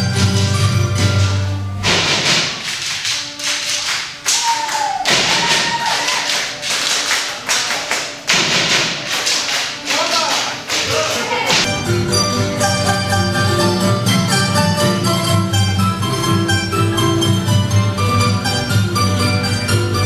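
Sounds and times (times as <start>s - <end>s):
music: 0.0s - 20.0s
wooden sticks clacking: 1.2s - 7.0s.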